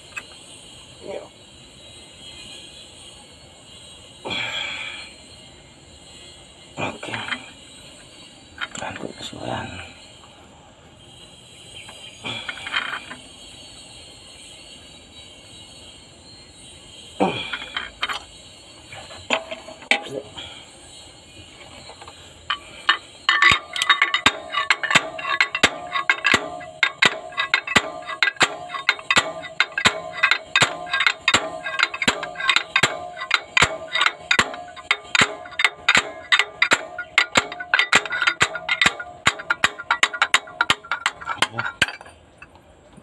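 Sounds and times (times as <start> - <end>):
sharp metal-on-metal blows: 22.5 - 42.1.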